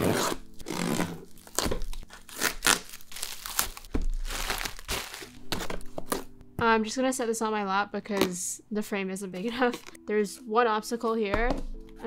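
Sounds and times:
plastic packaging crinkling: 0:00.3 - 0:06.3.

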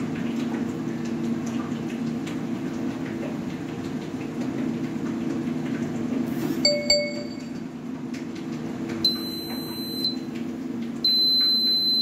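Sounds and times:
high buzzer beep: 0:06.7 - 0:07.6, 0:09.1 - 0:10.2, 0:11.1 - 0:12.0
ringing pings: 0:06.7 - 0:07.6.

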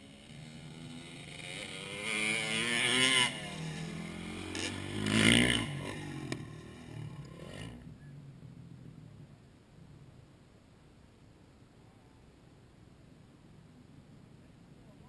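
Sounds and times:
motocross bike engine revving: 0:00.0 - 0:08.0.

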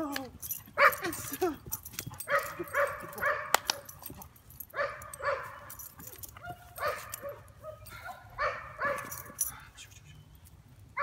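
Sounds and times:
dog barking: 0:00.8 - 0:01.1, 0:02.2 - 0:03.9, 0:04.8 - 0:05.7, 0:06.4 - 0:09.3.

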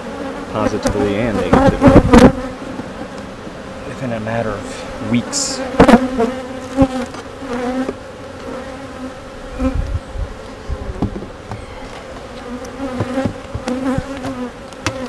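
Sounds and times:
bees buzzing: 0:00.0 - 0:15.0
light knocks on hive: 0:11.0 - 0:11.6, 0:12.9 - 0:15.0.

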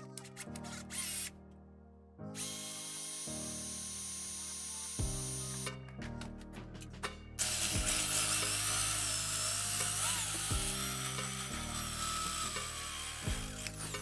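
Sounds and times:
power drill whining into metal: 0:02.4 - 0:05.7, 0:07.4 - 0:14.0.

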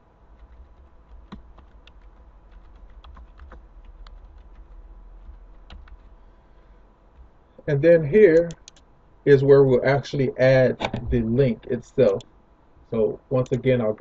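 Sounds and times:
faint low hum: 0:00.0 - 0:14.0
computer keyboard typing: 0:00.3 - 0:06.3, 0:08.4 - 0:08.9.

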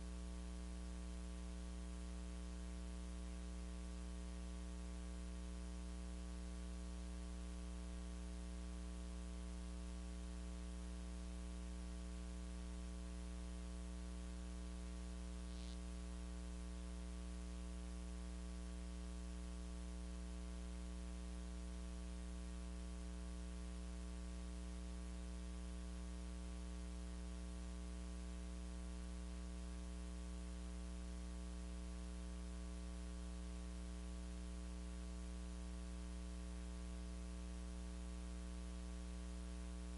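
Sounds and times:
steady electrical hum: 0:00.0 - 0:39.9
constant hiss: 0:12.6 - 0:17.4.

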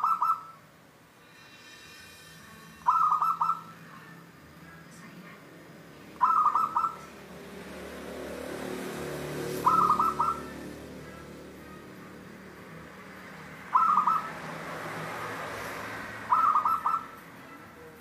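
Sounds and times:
dove cooing: 0:00.0 - 0:00.6, 0:02.8 - 0:03.8, 0:06.2 - 0:07.1, 0:09.5 - 0:11.4, 0:13.7 - 0:14.5, 0:16.2 - 0:17.2.

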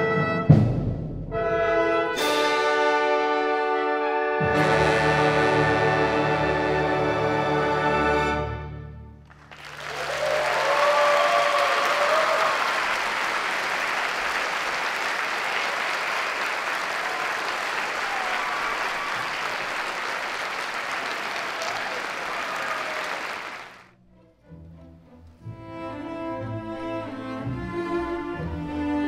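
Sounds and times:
audience whooping: 0:09.3 - 0:23.8
audience applause: 0:09.3 - 0:23.9.

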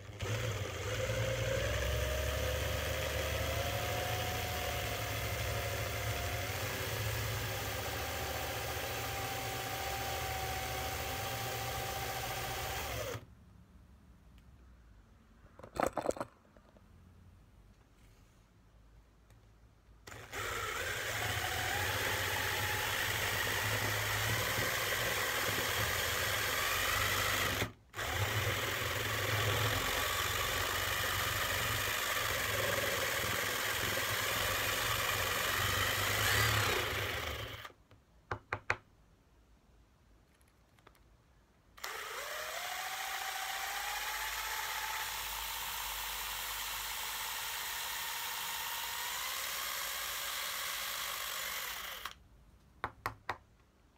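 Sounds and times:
cordless drill boring into wood: 0:00.0 - 0:13.2, 0:20.1 - 0:37.8, 0:41.8 - 0:52.2
drill clicks: 0:00.0 - 0:13.2, 0:20.0 - 0:37.9, 0:41.8 - 0:52.2.

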